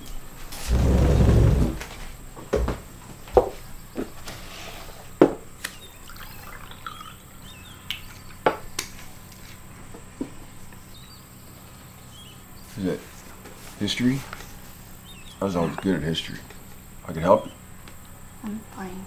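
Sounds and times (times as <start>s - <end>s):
faint high chirps: 5.7s - 8.4s.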